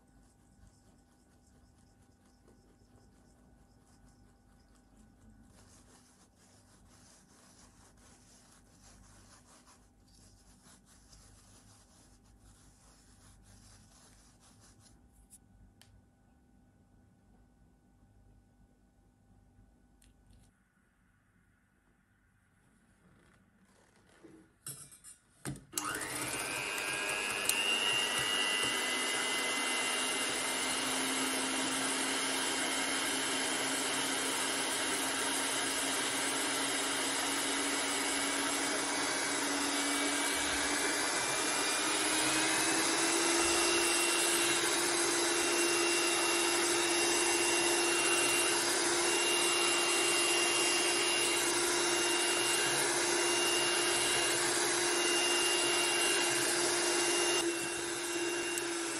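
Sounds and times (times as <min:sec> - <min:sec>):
electric hand mixer whipping: 0:25.8 - 0:58.9.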